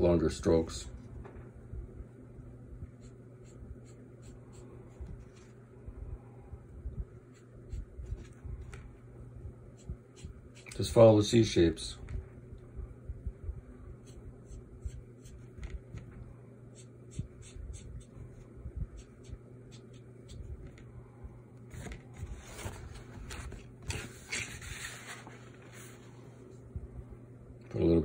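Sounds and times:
pen scratching on paper: 3.0s - 5.0s, 7.3s - 8.4s, 16.7s - 18.4s, 19.0s - 20.6s
paper rustling: 21.7s - 26.2s.

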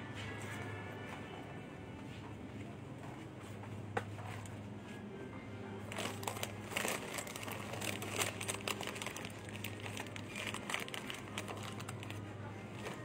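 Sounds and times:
crinkling and rustling: 5.8s - 13.0s.

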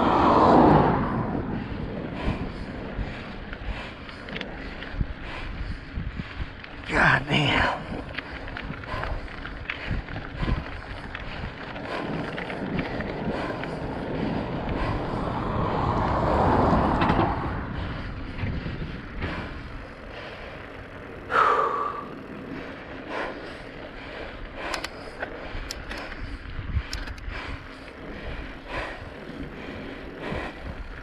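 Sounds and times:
road noise on asphalt: 0.0s - 31.0s
wind rushing over microphone: 0.0s - 31.0s
light clicks: 24.7s - 26.2s, 26.9s - 27.3s.

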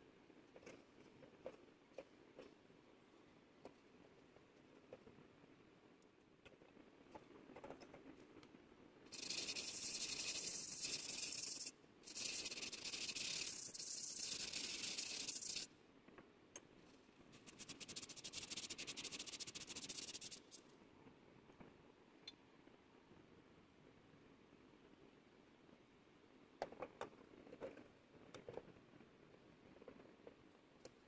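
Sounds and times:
faint ticks and handling: 6.0s - 20.7s.

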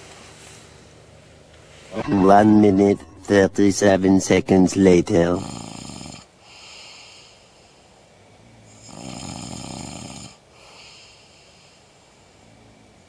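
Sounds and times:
man snoring: 5.1s - 7.5s, 8.3s - 13.0s.

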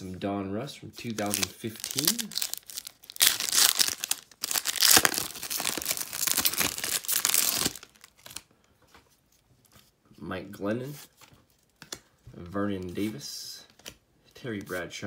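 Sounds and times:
foil wrapper tearing and crinkling: 1.1s - 8.4s.

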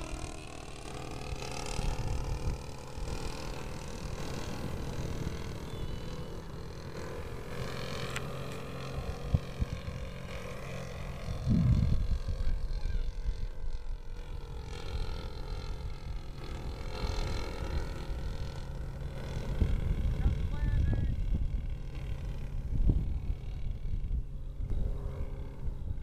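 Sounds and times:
model plane engine droning: 0.0s - 26.0s
low rumble: 1.0s - 17.4s.

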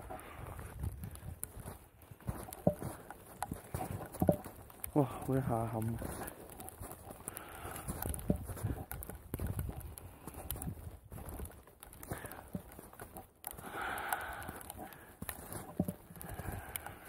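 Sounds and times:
knocks and taps: 2.5s - 4.6s.

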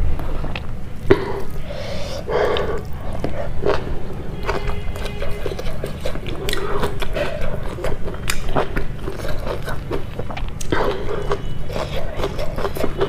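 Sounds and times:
close-miked chewing: 0.3s - 13.0s
mouth clicks: 0.6s - 3.9s.

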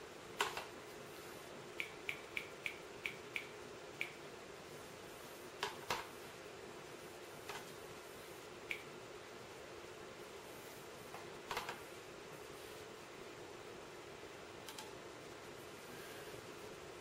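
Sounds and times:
faint steady hum: 0.0s - 17.0s
mouse and keyboard clicks: 0.4s - 0.7s, 5.6s - 6.1s, 11.5s - 11.8s.

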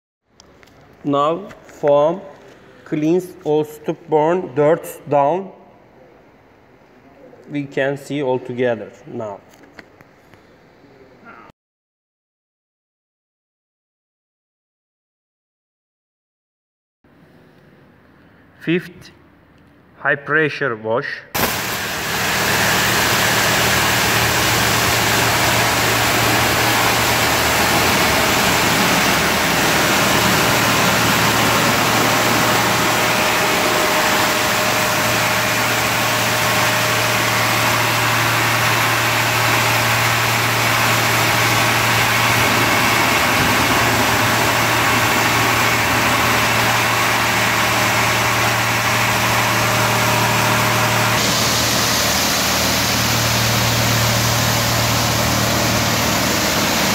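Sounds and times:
low machine hum: 21.4s - 56.9s
water jets blasting against car: 21.4s - 56.9s.

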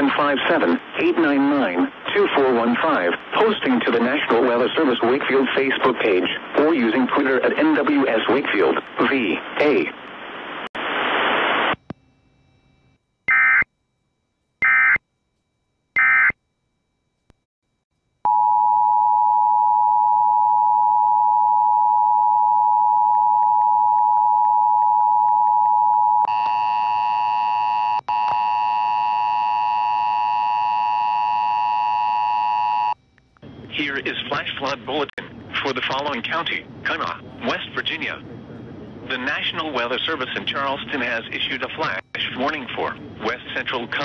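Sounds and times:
harsh multi-pitch attention signal: 11.8s - 13.7s, 14.6s - 15.0s, 16.0s - 16.4s.

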